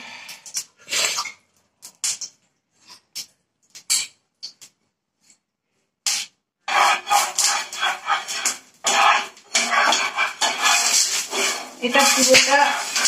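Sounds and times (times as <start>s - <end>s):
ghee crackling and spitting: 6.1s - 13.0s.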